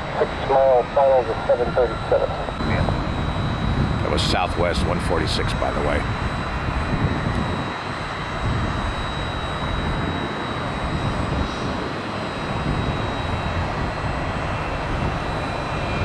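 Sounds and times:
jet engines whining: 0.0 - 16.0.

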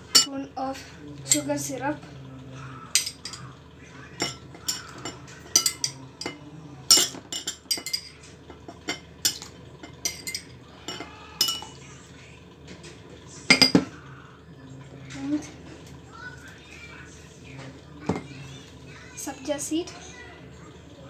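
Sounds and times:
metal spoon clinking on glass: 0.0 - 0.3, 2.9 - 3.4, 4.2 - 11.8.

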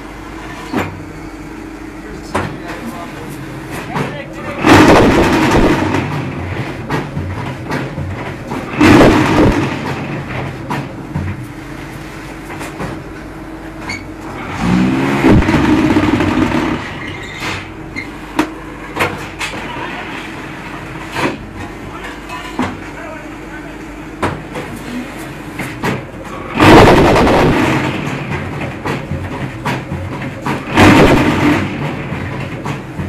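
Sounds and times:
machine motor hum: 0.0 - 18.9
machine shaking surge: 4.5 - 6.6, 14.5 - 17.1, 26.5 - 28.4, 30.6 - 32.2.

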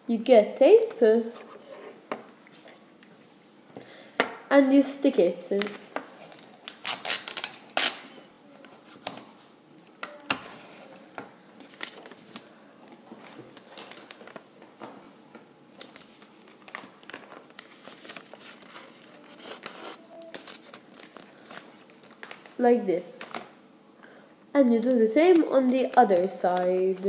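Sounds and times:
paper crinkling and rustling: 10.6 - 14.6, 15.8 - 22.6, 25.3 - 27.0.

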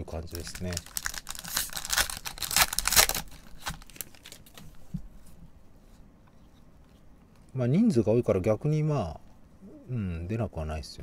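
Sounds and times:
foil wrapper tearing and crinkling: 0.2 - 4.6.

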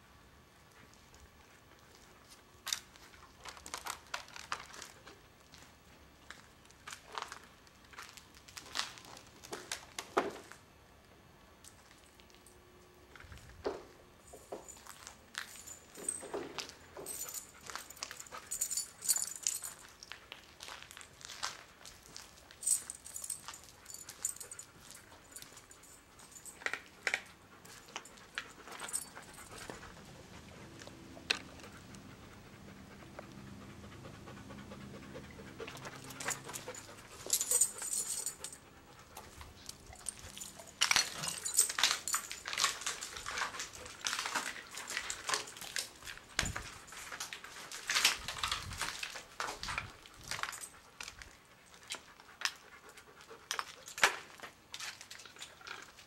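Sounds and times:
footsteps crunching on rubble: 19.8 - 25.6
dog panting: 27.2 - 42.4, 50.5 - 54.0.

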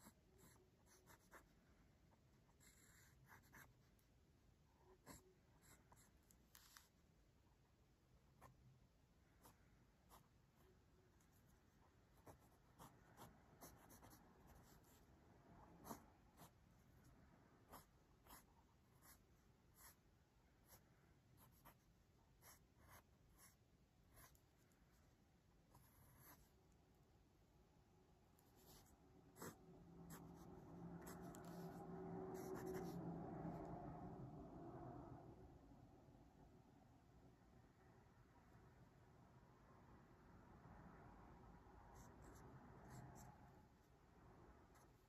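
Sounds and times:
pen scratching on paper: 0.0 - 4.1, 4.9 - 7.0, 9.4 - 25.1, 25.7 - 26.6, 28.4 - 33.6, 41.9 - 43.9
faint steady hum: 0.0 - 45.0.

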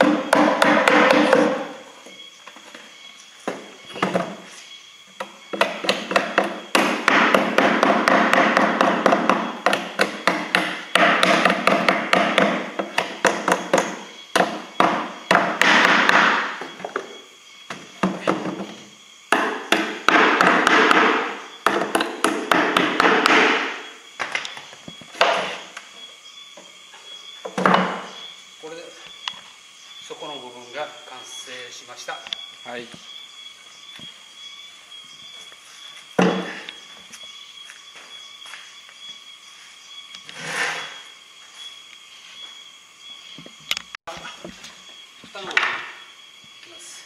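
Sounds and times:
hammer tapping on wood: 0.0 - 1.6.

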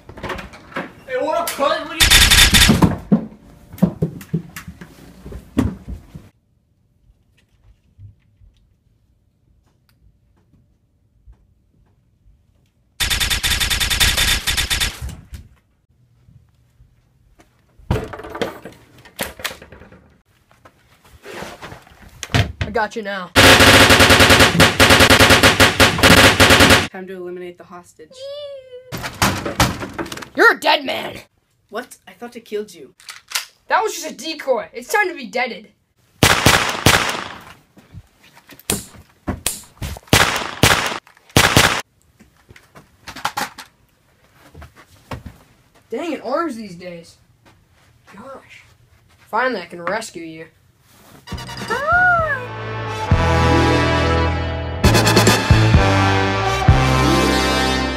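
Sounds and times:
gunshots in quick succession: 2.0 - 2.9, 13.0 - 15.1, 23.4 - 26.9, 36.2 - 37.5, 40.1 - 41.8
door banging open: 28.9 - 30.3.

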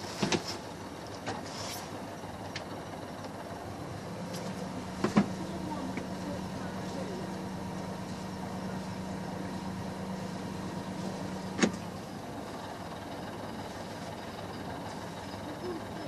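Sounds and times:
boat diesel engine running: 0.0 - 16.0.

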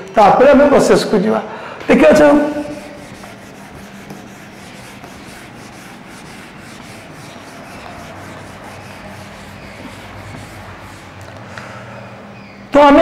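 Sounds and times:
duster rubbing on whiteboard: 2.1 - 11.3.

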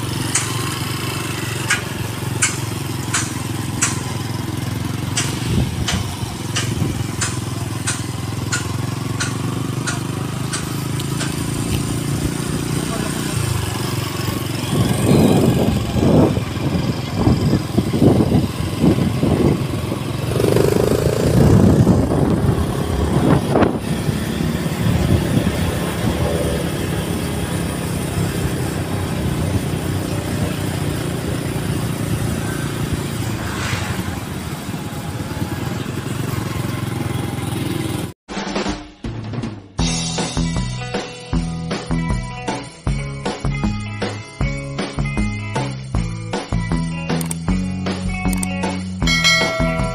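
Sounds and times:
motorcycle engine running: 0.0 - 38.2, 48.3 - 49.9
wind and road noise: 0.0 - 38.2.

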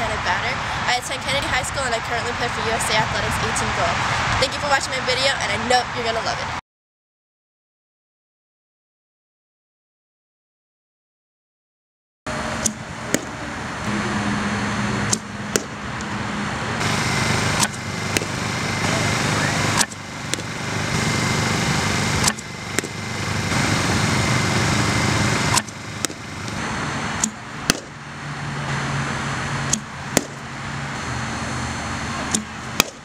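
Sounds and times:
outdoor background noise: 0.0 - 6.6, 12.3 - 33.0
bat cracking ball: 12.6 - 13.6, 15.1 - 16.2, 16.8 - 18.8, 19.4 - 26.6, 27.2 - 28.0, 29.7 - 30.5, 32.2 - 33.0.

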